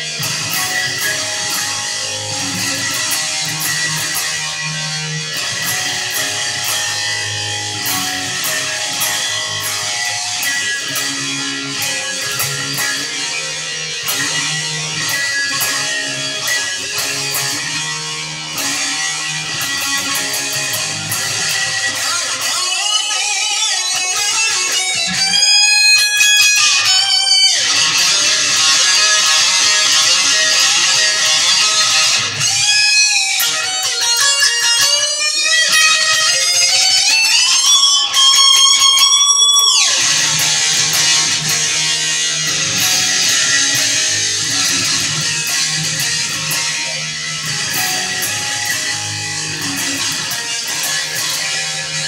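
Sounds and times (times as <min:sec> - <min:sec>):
electric guitar lead with bends: 0:00.0 - 0:52.0
electric guitar low rhythm riff: 0:00.0 - 0:52.0.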